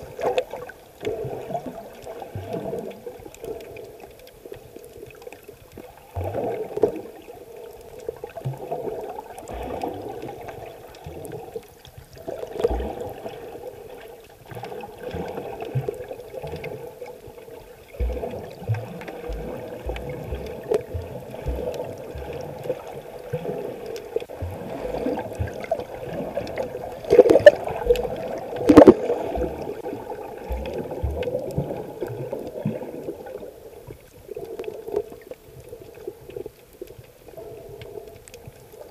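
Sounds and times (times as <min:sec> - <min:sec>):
underwater gurgling and bubbles: 0:00.0 - 0:38.9
low underwater thuds: 0:24.4 - 0:29.8.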